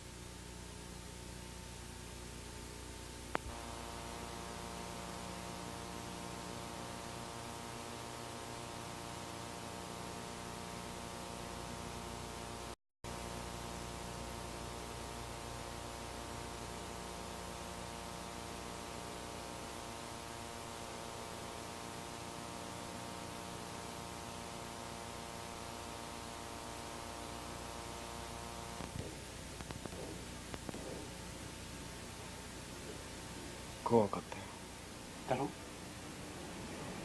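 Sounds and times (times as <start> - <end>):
electrical mains hum: 0.0 - 37.0
steady hiss: 0.0 - 37.0
faint clicks and rustles: 28.8 - 31.4.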